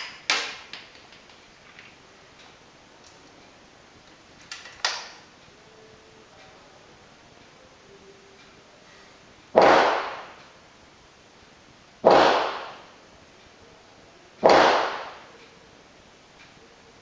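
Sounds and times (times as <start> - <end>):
rifle shots with reverberation: 9.6 - 10.4, 12.0 - 12.9, 14.4 - 15.3.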